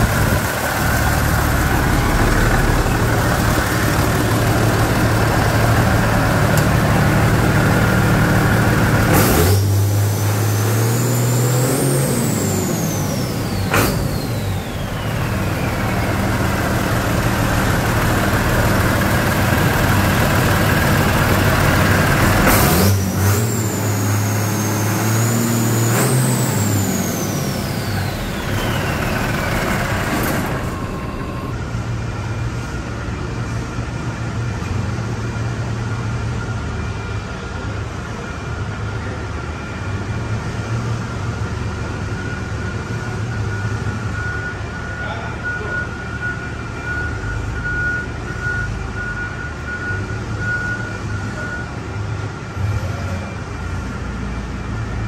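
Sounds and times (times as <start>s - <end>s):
diesel engine idling and revving: 0.0s - 55.0s
turbocharger whistle: 22.3s - 31.6s.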